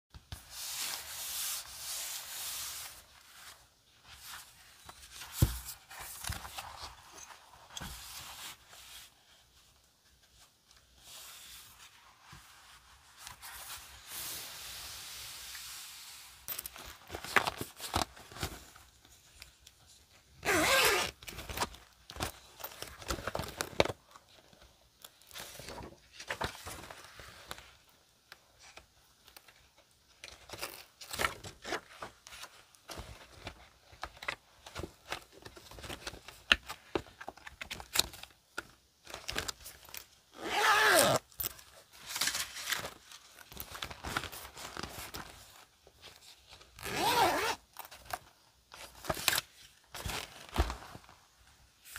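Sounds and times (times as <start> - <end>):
notebook pages rustling: 0.2 - 19.8, 21.0 - 27.9, 30.3 - 40.1, 41.2 - 46.9, 47.8 - 51.9
zipper rasp: 20.4 - 21.1, 40.4 - 41.2, 46.8 - 47.6
zipper pouch clicks and rustles: 20.4 - 23.9, 39.2 - 41.6, 46.8 - 48.2.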